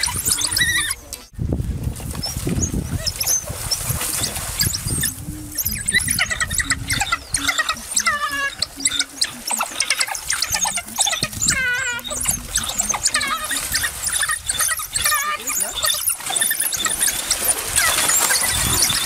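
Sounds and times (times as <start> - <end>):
wild dogs twittering: 0.0 - 1.3, 2.2 - 19.0.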